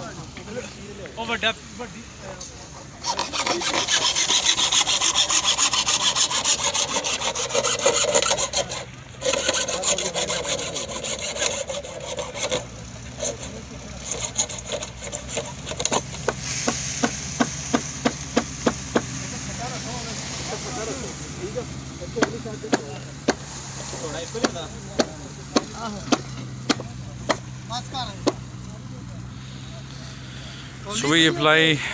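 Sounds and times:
hacksaw cutting plastic pipe: 0:03.0 - 0:19.2, 0:22.2 - 0:23.4, 0:24.2 - 0:27.4, 0:28.2 - 0:28.4.

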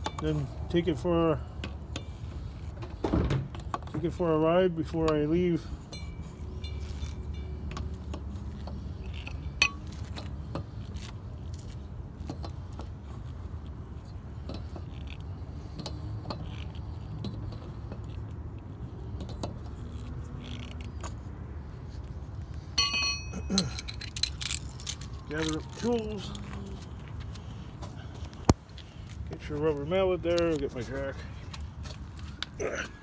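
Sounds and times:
metal clinks of lug wrench: 0:00.0 - 0:00.4, 0:05.0 - 0:10.3, 0:22.8 - 0:25.8
sharp metal clank: 0:22.8 - 0:23.9.

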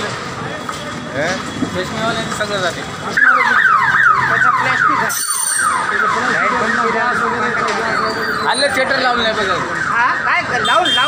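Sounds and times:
emergency siren yelping: 0:03.1 - 0:11.0.

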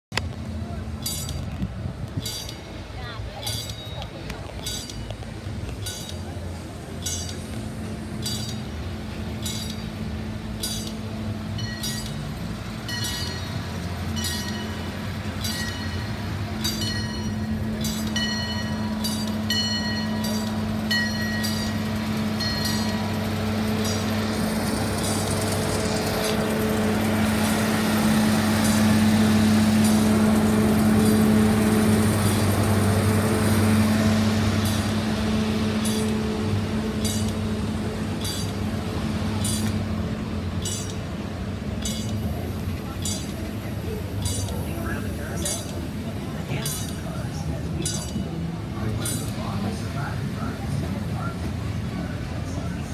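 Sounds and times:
engine hum: 0:00.0 - 0:52.9
train rumbling: 0:00.0 - 0:52.9
railroad crossing bell dinging: 0:00.2 - 0:52.9.

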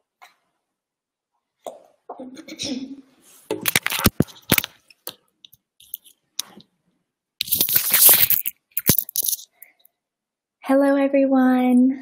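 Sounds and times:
rustling: 0:07.4 - 0:09.7.

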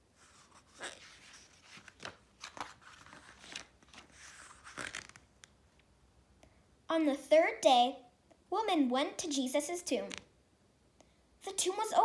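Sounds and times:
book pages turning: 0:00.2 - 0:05.6, 0:10.1 - 0:10.3.

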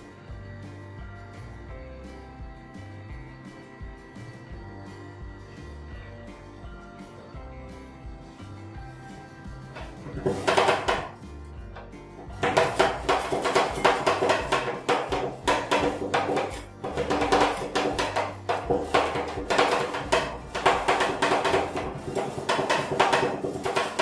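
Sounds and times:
metal spatulas striking metal plate: 0:10.2 - 0:11.2, 0:12.4 - 0:24.0.

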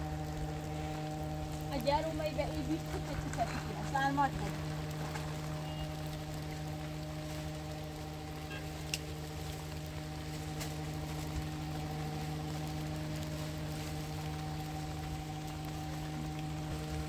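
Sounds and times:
steady machine hum: 0:00.0 - 0:17.0
faint ticks: 0:08.8 - 0:10.0.

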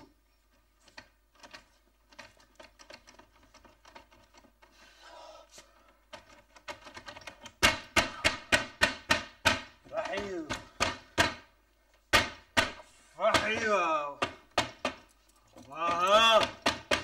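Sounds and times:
metal door handle scratching and clicking: 0:00.8 - 0:04.7, 0:06.1 - 0:07.6.

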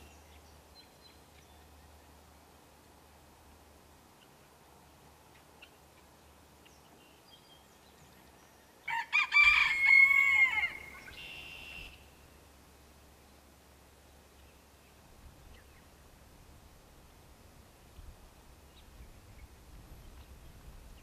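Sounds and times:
rooster crowing: 0:08.9 - 0:11.0
bird chirps: 0:10.8 - 0:12.1.

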